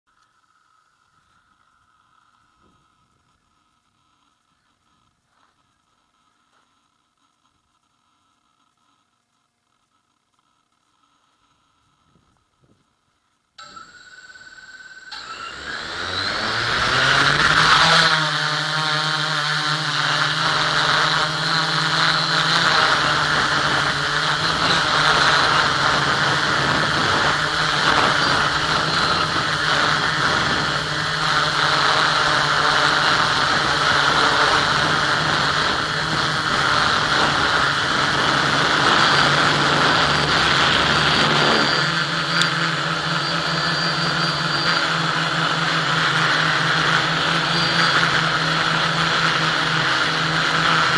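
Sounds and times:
model aircraft propellers whirring: 0:13.6 - 0:50.9.

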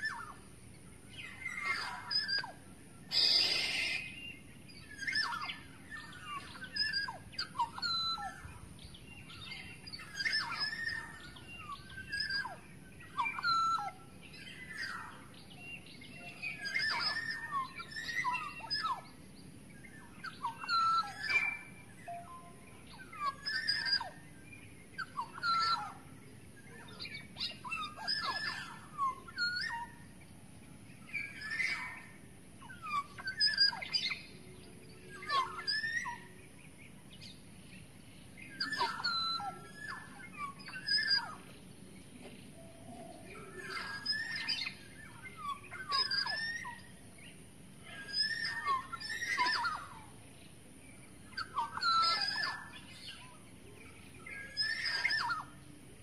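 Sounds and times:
oriole calling: 0:01.4 - 0:04.2, 0:38.5 - 0:41.5.

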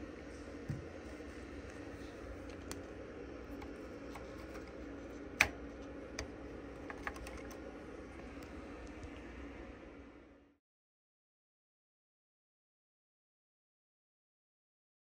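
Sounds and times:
steady low hum: 0:00.0 - 0:10.6.

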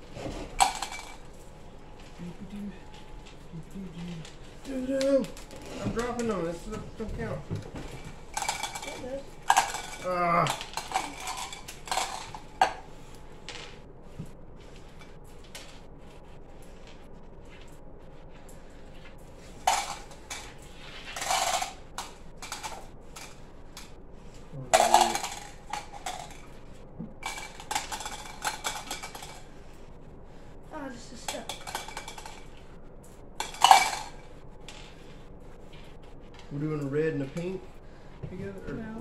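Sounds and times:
small hard pieces clicking into cups: 0:00.4 - 0:01.4, 0:02.0 - 0:06.4, 0:07.7 - 0:13.8, 0:19.4 - 0:29.6, 0:31.2 - 0:35.0.

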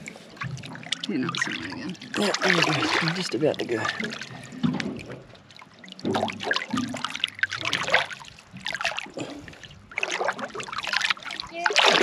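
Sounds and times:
water splashing and trickling: 0:00.0 - 0:12.0.

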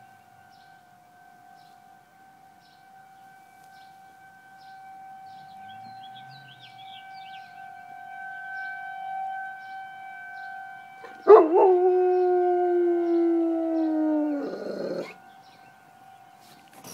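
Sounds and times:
distant warning siren: 0:00.0 - 0:16.9
dog howling: 0:11.0 - 0:15.2.

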